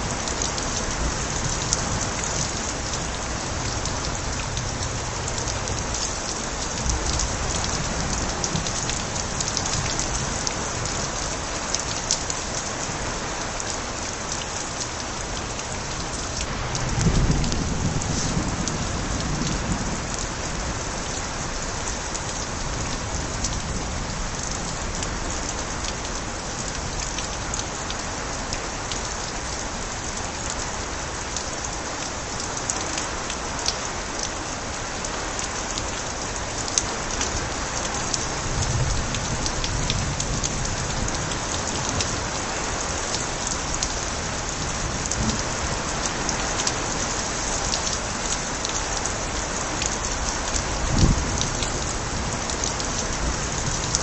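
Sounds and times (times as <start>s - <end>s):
rain pattering: 0.0s - 54.0s
water spilling from gutters: 0.0s - 54.0s
low thunder rumble: 16.5s - 20.8s, 50.9s - 52.4s.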